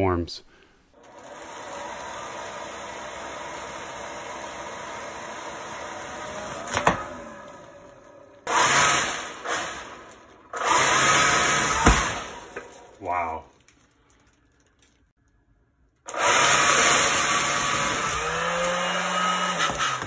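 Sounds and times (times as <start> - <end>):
electric compressor whine: 1.0 - 13.0.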